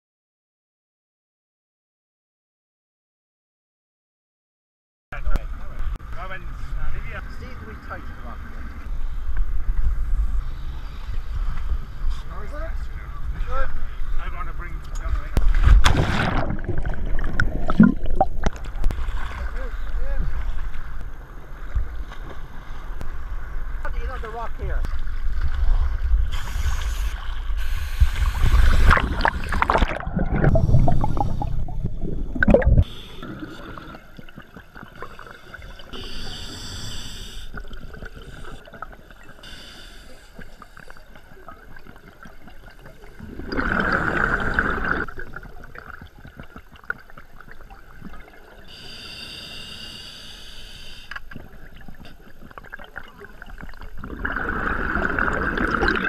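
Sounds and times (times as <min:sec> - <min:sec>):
muffled underwater wash: 0:05.2 - 0:56.0
exhaled bubbles rushing: 0:15.6 - 0:19.5, 0:27.6 - 0:36.0, 0:41.4 - 0:48.7, 0:51.4 - 0:56.0
scuba regulator breathing: 0:26.2 - 0:29.8, 0:32.8 - 0:34.2, 0:35.0 - 0:41.2, 0:48.7 - 0:51.3.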